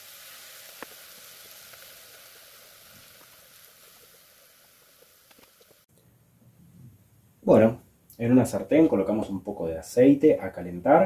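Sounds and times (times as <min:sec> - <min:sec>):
hot cookware sizzling: 0:00.0 - 0:05.9.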